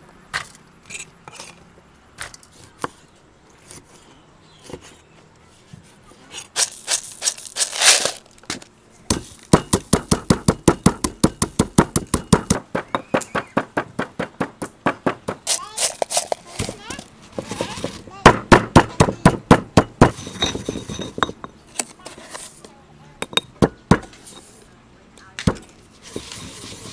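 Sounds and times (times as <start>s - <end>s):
pestle pounding peppercorns: 6.4s - 21.5s, 23.2s - 24.2s.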